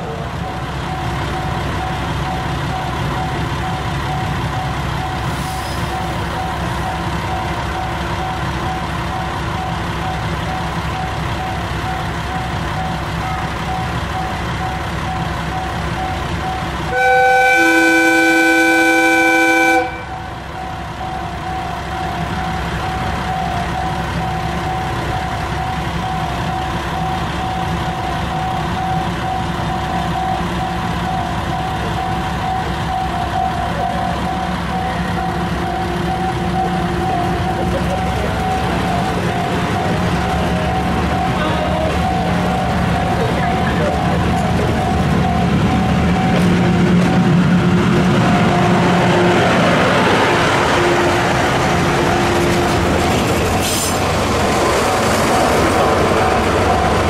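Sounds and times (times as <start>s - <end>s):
diesel locomotive running: 0.0s - 57.0s
train horn chord: 16.9s - 20.3s.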